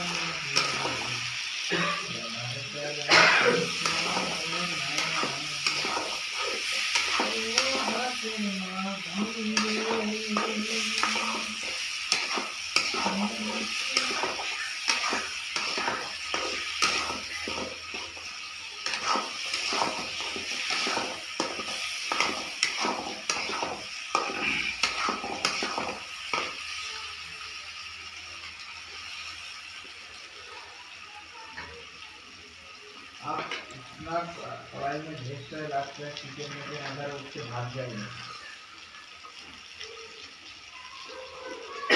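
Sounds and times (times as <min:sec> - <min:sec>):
food sizzling in a pan: 0:00.0 - 0:41.9
spatula scraping a pan: 0:03.6 - 0:08.3, 0:09.1 - 0:26.6.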